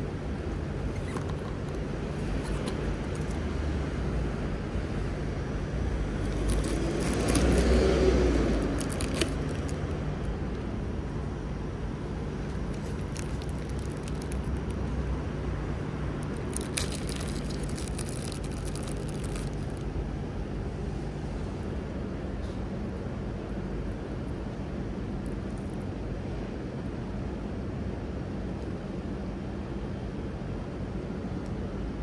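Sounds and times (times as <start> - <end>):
low traffic hum: 0.0 - 32.0
plastic bag crinkling: 6.2 - 10.0, 12.4 - 14.8, 16.2 - 19.8.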